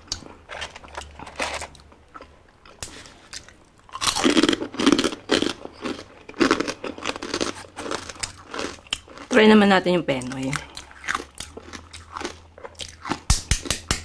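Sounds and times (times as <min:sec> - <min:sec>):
close chewing with wet clicks: 0:10.3 - 0:13.3.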